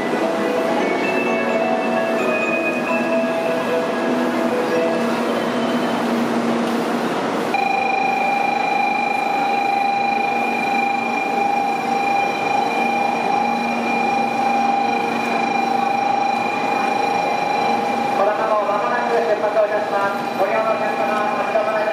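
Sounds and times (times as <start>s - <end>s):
crowd walking and bustling: 0.0s - 21.9s
electronic bell ringing: 0.8s - 3.8s, 7.5s - 18.3s.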